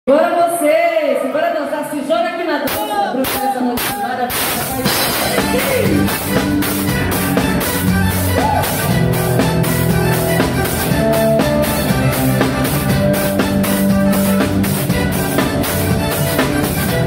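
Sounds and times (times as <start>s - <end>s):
drum kit steady beat: 2.7s - 17.0s
guitar notes: 4.3s - 17.0s
held bass notes: 4.6s - 17.0s.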